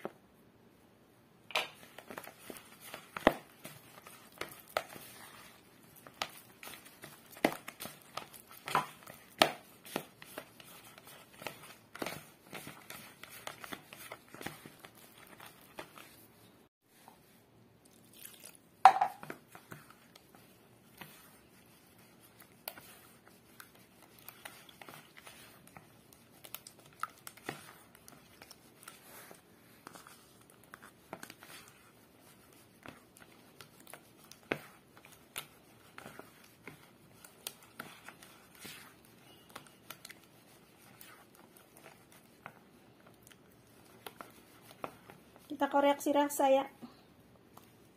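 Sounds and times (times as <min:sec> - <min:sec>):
spatula tapping plastic bowl: 0:18.8 - 0:19.4.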